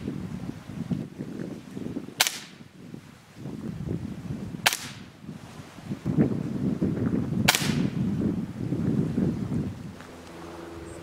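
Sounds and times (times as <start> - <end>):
air rifle shot cracks: 2.2 - 2.6, 4.6 - 5.1, 7.4 - 8.0.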